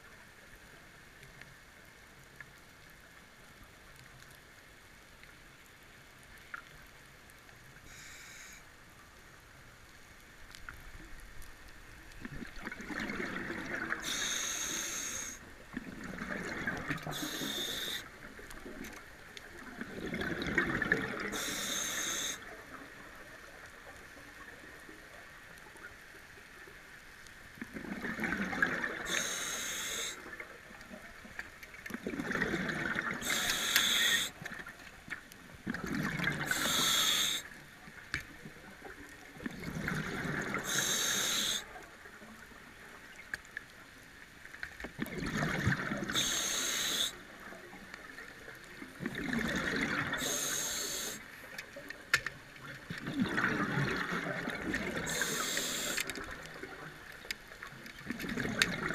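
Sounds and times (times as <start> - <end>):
exhaust bubbles bubbling: 12.2 - 14.0, 19.7 - 21.4, 27.7 - 29.1, 32.0 - 33.3, 48.9 - 50.2, 52.9 - 55.1
regulator hissing: 14.0 - 15.4, 17.2 - 18.0, 29.1 - 30.2, 33.3 - 34.3, 36.5 - 37.4, 40.7 - 41.6, 46.2 - 47.1, 50.2 - 51.2, 55.1 - 56.0.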